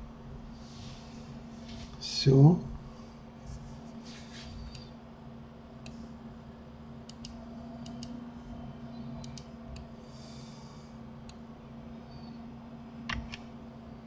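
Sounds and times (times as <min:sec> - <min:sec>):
steady low hum: 0:00.0 - 0:14.0
computer mouse clicks: 0:07.1 - 0:08.2, 0:09.2 - 0:09.5.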